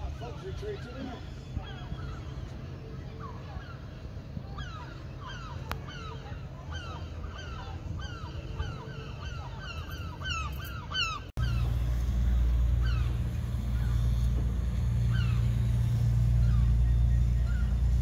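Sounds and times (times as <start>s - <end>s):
gulls calling: 0.0s - 18.0s
low rumble: 11.4s - 18.0s.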